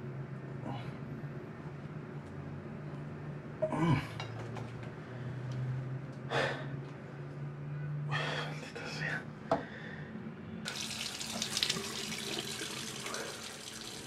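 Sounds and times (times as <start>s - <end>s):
steady low hum: 0.0s - 10.7s.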